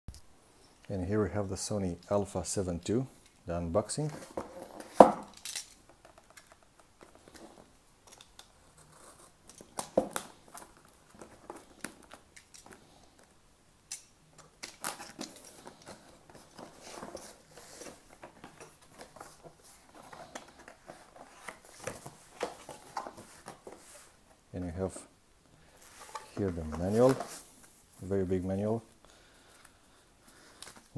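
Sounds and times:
cardboard flaps rustling: 0:14.9 - 0:24.2, 0:25.9 - 0:27.6.

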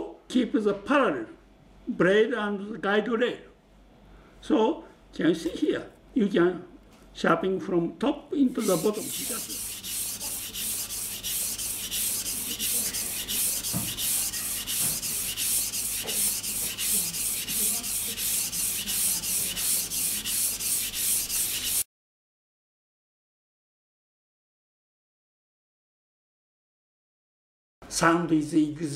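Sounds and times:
knife scraping on whetstone: 0:08.6 - 0:21.8.

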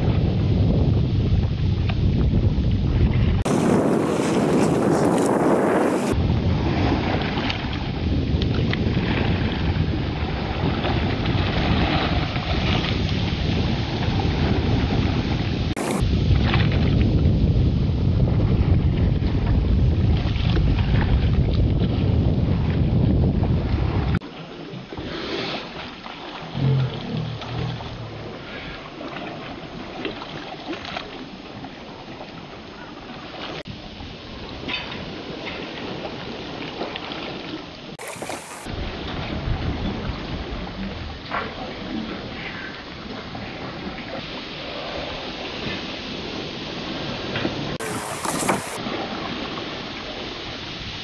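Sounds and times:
wind buffeting microphone: 0:00.0 - 0:24.2, 0:26.5 - 0:30.0, 0:37.9 - 0:49.6
water rushing past hull: 0:00.0 - 0:51.0
light water splashes: 0:24.2 - 0:45.9, 0:46.9 - 0:50.8.

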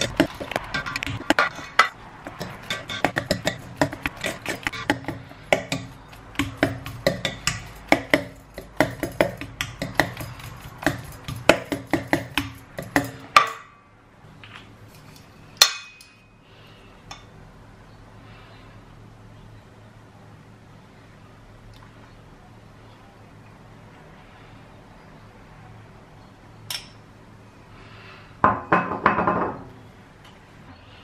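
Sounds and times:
potato masher clanking on metal bowl: 0:00.0 - 0:13.7.

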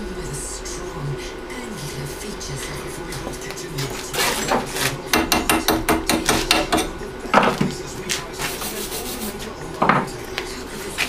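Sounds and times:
tool scraping on metal: 0:03.8 - 0:07.0.

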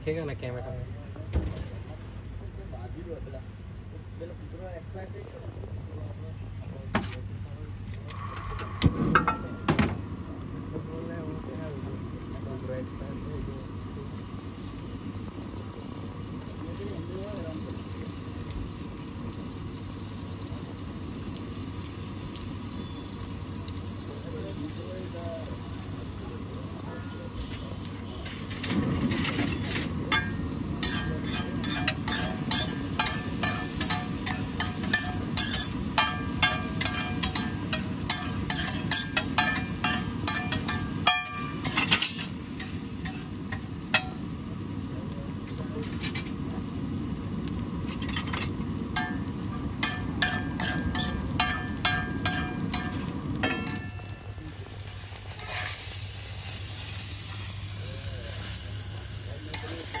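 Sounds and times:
eggs sizzling in oil: 0:08.1 - 1:00.0
metal spatula clanking on griddle: 0:28.2 - 0:44.2, 0:45.8 - 0:46.3, 0:47.9 - 0:54.4, 0:55.4 - 0:55.8, 0:59.5 - 1:00.0.

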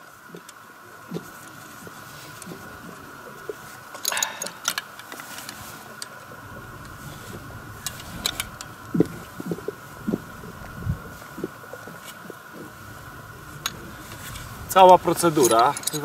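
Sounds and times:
spanners clinking on steel: 0:15.4 - 0:16.0.

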